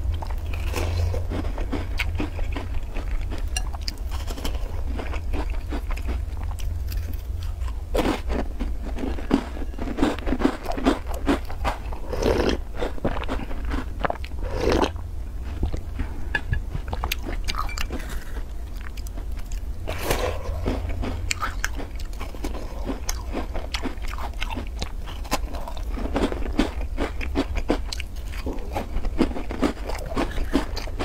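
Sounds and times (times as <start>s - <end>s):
crunching and chewing cookies: 0.0s - 31.0s
steady low hum: 0.0s - 31.0s.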